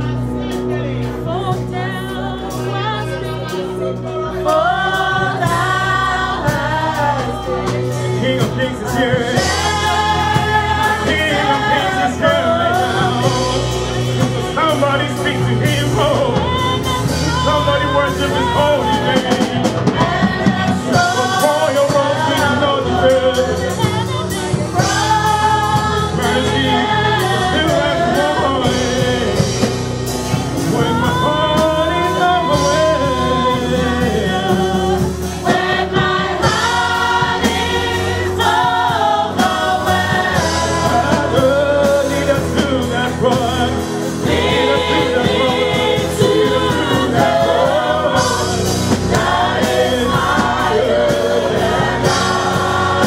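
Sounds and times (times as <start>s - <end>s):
live band playing: 0.0s - 53.0s
man and women singing gospel: 0.0s - 53.0s.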